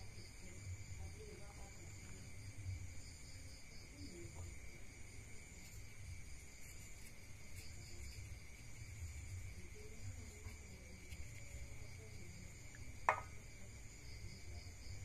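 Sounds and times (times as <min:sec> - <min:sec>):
crickets chirring: 0:00.0 - 0:15.0
soft ticks of objects handled: 0:04.1 - 0:13.4.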